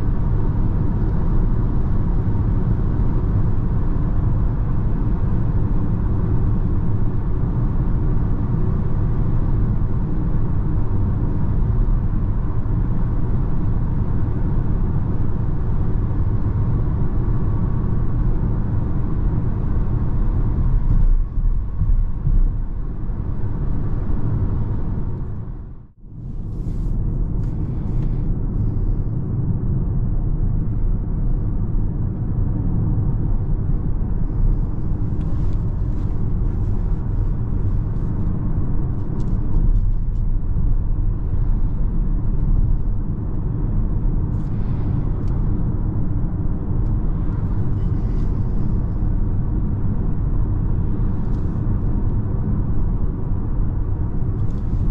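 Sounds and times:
tyre and wind rumble in car: 0.0s - 54.9s.

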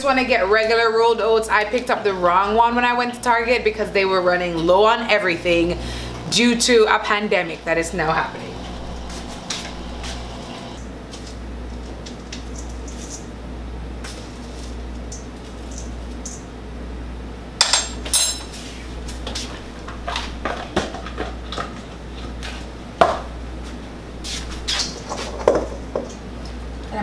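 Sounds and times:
steady low hum: 1.7s - 20.8s.

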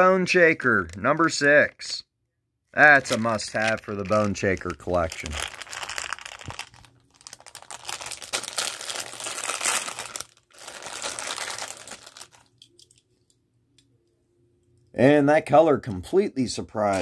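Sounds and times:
packaging crinkling and tearing: 2.8s - 12.8s.

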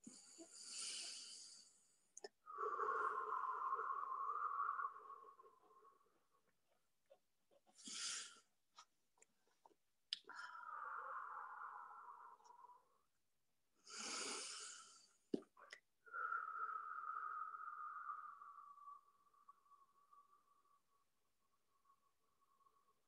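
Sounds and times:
woman breathing: 0.0s - 6.1s, 7.8s - 8.5s, 10.2s - 13.0s, 13.8s - 15.3s, 16.0s - 20.8s.

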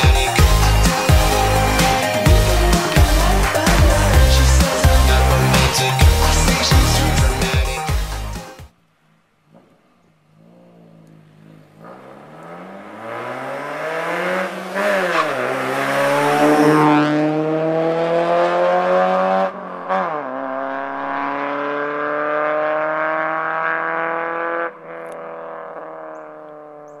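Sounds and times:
car engine accelerating hard: 10.4s - 27.0s.

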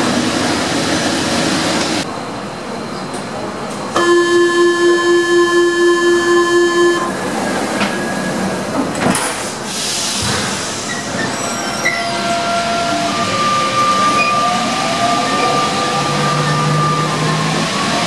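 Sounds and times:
train doors shutting: 0.0s - 18.0s.

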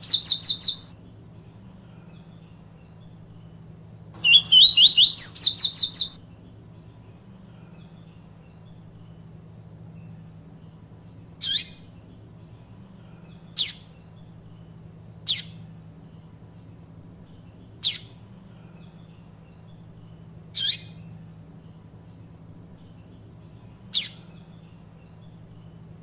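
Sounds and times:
bird calling high downward notes: 0.0s - 0.9s, 4.2s - 6.2s
faint low hum: 0.0s - 26.0s.

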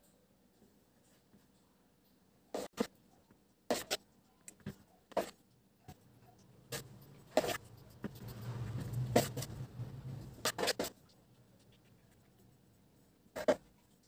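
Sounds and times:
palette knife scraping cream: 3.7s - 5.4s, 6.4s - 12.7s, 13.3s - 14.0s
low rubbing rumble: 7.7s - 10.5s.

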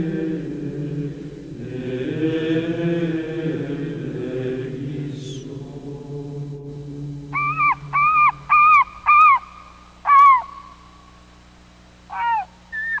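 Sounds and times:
gulls calling: 0.0s - 13.0s
low steady drone: 0.0s - 13.0s.

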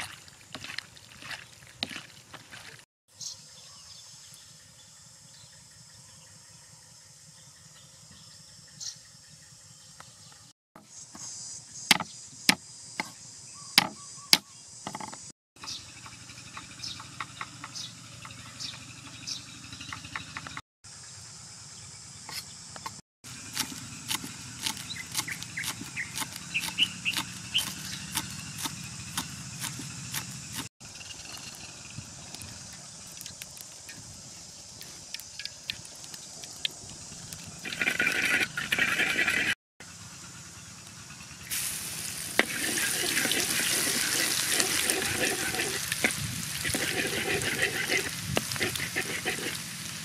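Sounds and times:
insects: 0.0s - 50.0s
cleaver chopping on wooden board: 13.8s - 15.1s, 23.6s - 30.7s
oil sizzling in a wok: 41.4s - 50.0s.

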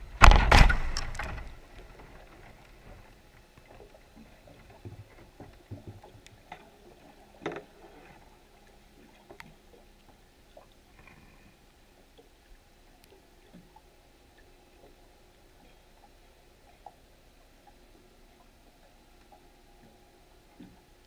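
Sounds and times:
underwater clicks and knocks: 0.2s - 6.7s, 7.4s - 8.2s.

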